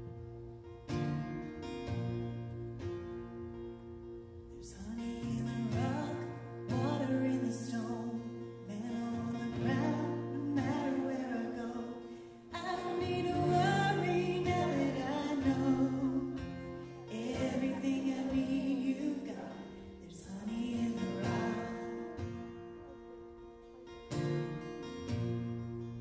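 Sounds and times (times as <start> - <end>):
woman singing: 4.6 - 23.1.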